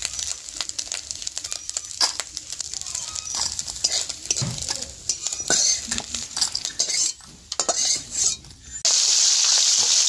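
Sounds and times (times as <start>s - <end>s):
hot oil hissing: 0.0s - 10.0s
metal spatula scraping metal pan: 1.4s - 8.9s.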